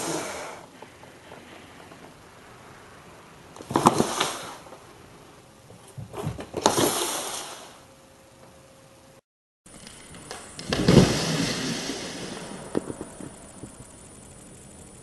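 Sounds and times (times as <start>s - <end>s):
cat skidding across floor: 3.6s - 4.8s, 9.8s - 13.9s.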